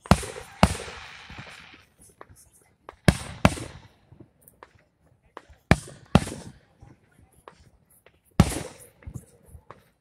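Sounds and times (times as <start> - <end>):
firework shells bursting: 0.0 - 4.0.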